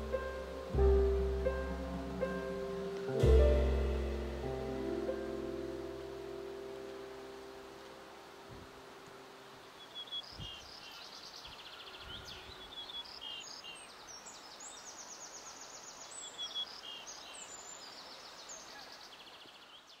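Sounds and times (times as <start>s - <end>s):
steady background hiss: 0.0s - 20.0s
small birds chirping and trilling: 9.6s - 20.0s.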